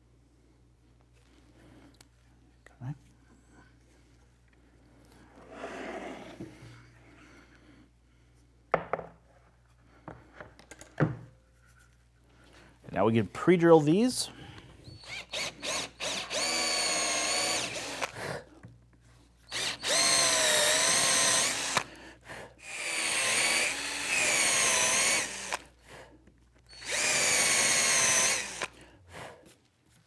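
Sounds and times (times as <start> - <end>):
cordless drill whining: 14.8 - 18.3, 19.5 - 22.0, 22.6 - 25.8, 26.6 - 28.8.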